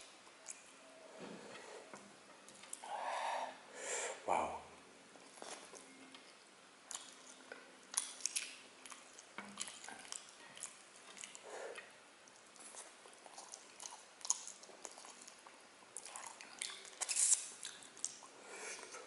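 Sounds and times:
person chewing food: 0:01.5 - 0:02.9, 0:05.1 - 0:19.0
fingers in saucy food: 0:05.2 - 0:19.0.

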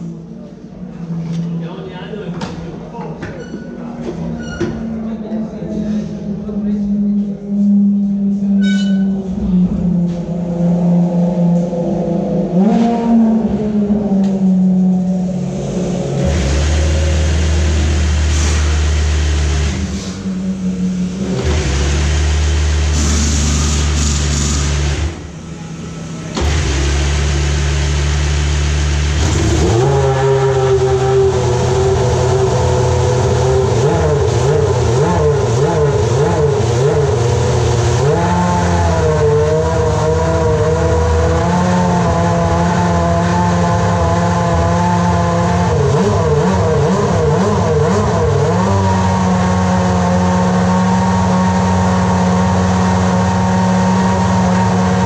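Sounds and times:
racing engine idling: 0:04.8 - 0:55.0
steady low drone: 0:05.1 - 0:55.0.

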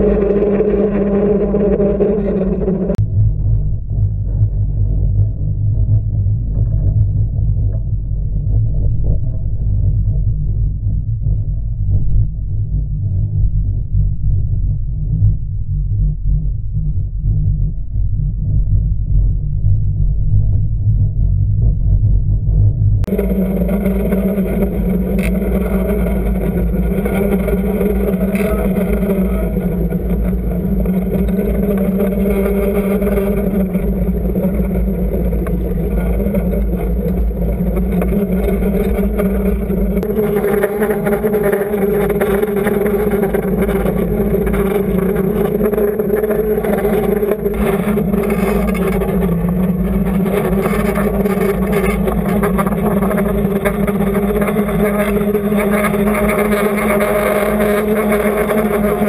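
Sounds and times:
boat engine droning underwater: 0:00.0 - 0:59.0.

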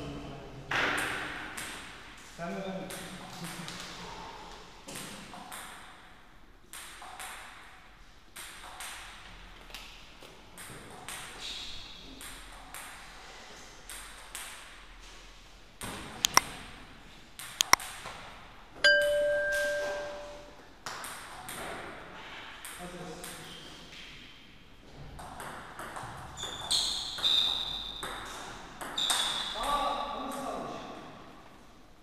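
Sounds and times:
table tennis balls bouncing: 0:18.9 - 0:20.4, 0:25.2 - 0:29.5
ringing chime: 0:18.9 - 0:20.5.

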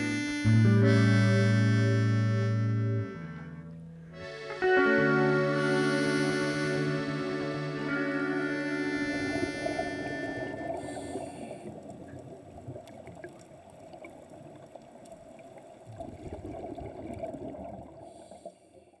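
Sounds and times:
underwater bubbles gurgling: 0:09.4 - 0:18.5.

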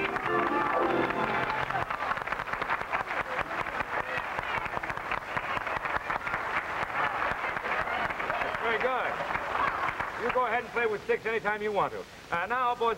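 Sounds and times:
band music: 0:00.0 - 0:01.8
applause: 0:00.0 - 0:10.7.

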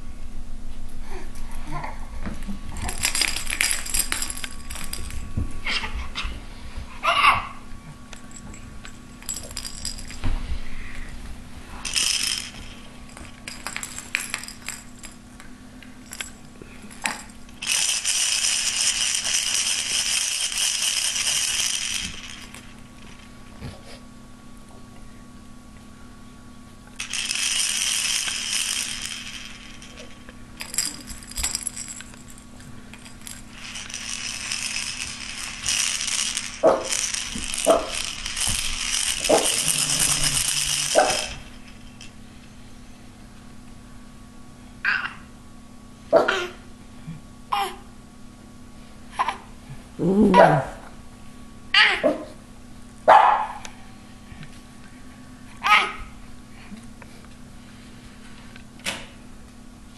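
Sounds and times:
plastic toy rattle shaken: 0:02.8 - 0:05.3, 0:08.2 - 0:10.2, 0:11.8 - 0:15.4, 0:16.0 - 0:23.6, 0:27.0 - 0:42.2.

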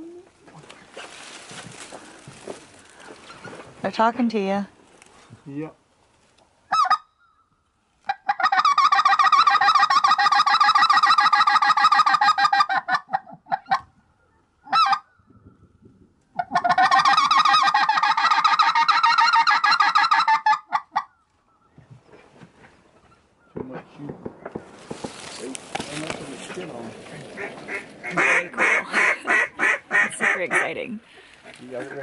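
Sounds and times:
duck call chattering: 0:06.7 - 0:07.2, 0:08.1 - 0:13.8, 0:14.7 - 0:15.1, 0:16.4 - 0:21.1, 0:27.4 - 0:30.8.

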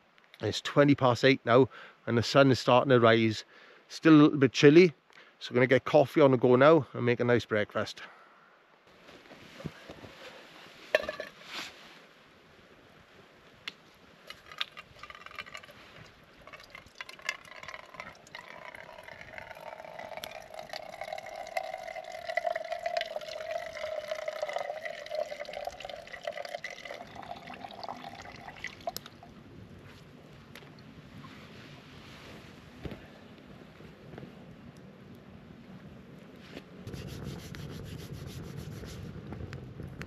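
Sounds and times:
water trickling into a mug: 0:14.3 - 0:29.3.

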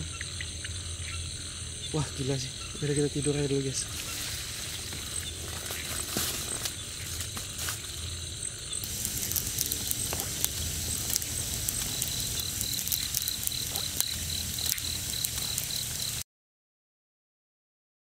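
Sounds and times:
high-pitched insect chorus: 0:00.0 - 0:16.2
pulsing insect chirp: 0:00.0 - 0:16.2
hiss with light clicks: 0:08.8 - 0:16.2.

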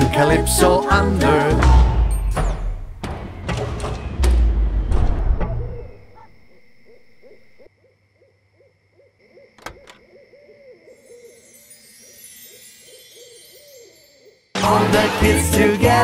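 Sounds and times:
rapid rising-and-falling calls: 0:09.4 - 0:16.0
high tinkling shimmer: 0:11.0 - 0:16.0.

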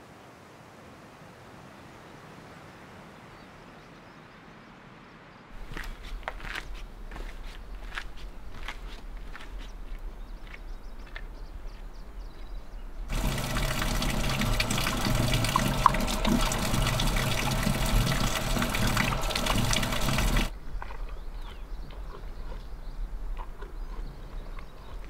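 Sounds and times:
water pouring and splashing: 0:13.1 - 0:21.0.

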